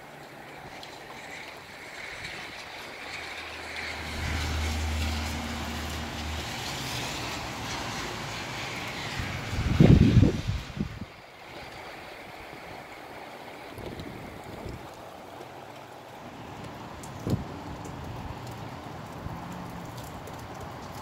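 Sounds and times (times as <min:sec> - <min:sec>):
gusty wind and rain: 0:00.0 - 0:21.0
low hum: 0:03.9 - 0:08.4.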